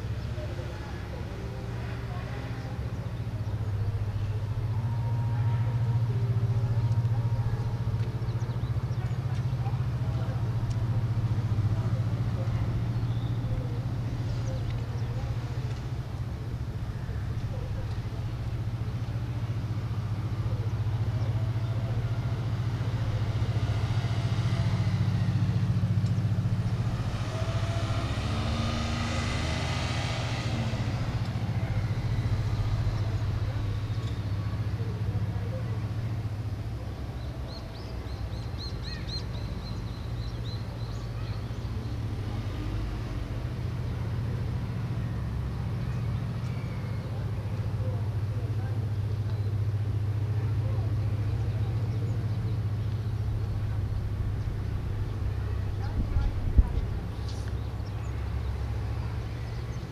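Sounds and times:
low mechanical hum: 0:00.0 - 0:59.9
vehicle passing: 0:00.0 - 0:59.9.

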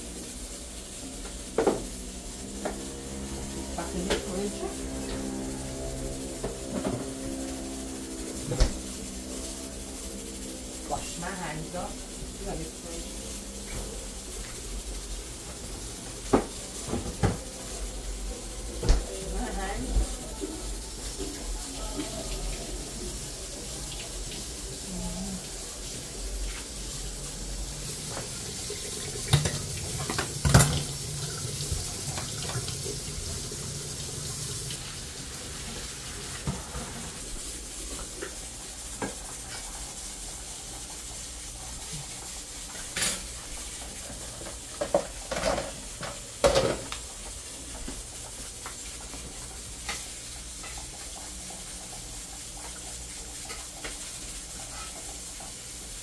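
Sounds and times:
tap water running into steel sink: 0:00.0 - 0:56.0
pots and utensils clinking: 0:00.9 - 0:18.0, 0:27.8 - 0:34.1, 0:35.6 - 0:40.0, 0:40.6 - 0:55.6.

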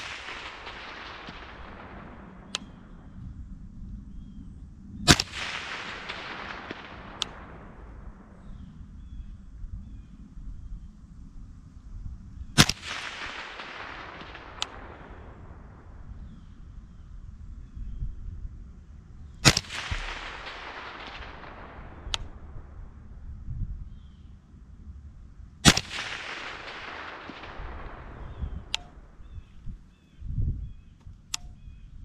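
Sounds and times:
sharp clicks: 0:00.0 - 0:03.0, 0:05.1 - 0:07.7, 0:12.6 - 0:15.0, 0:19.4 - 0:22.4, 0:25.7 - 0:29.6, 0:30.9 - 0:31.7
rifle shots with echo: 0:00.0 - 0:03.2, 0:05.0 - 0:09.2, 0:12.5 - 0:16.6, 0:19.3 - 0:23.2, 0:25.6 - 0:30.1.

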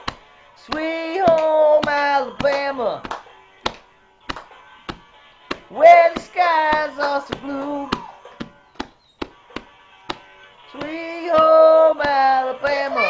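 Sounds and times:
girl singing long notes: 0:10.8 - 0:13.0.

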